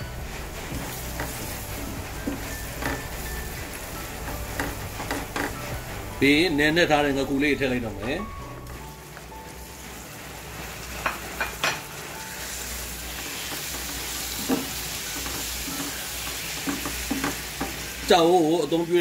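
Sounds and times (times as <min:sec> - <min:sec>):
fish sizzling in hot oil: 0:00.0 - 0:19.0
spatula knocking against pan: 0:00.8 - 0:01.6, 0:02.2 - 0:03.4, 0:04.2 - 0:05.7, 0:13.5 - 0:17.8.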